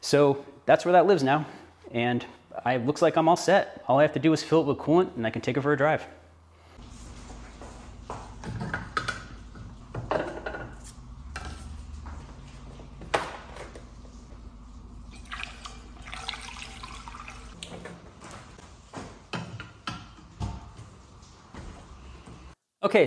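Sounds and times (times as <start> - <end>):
steady low hum: 6.1 - 19.3
coolant pouring through funnel: 15.0 - 17.7.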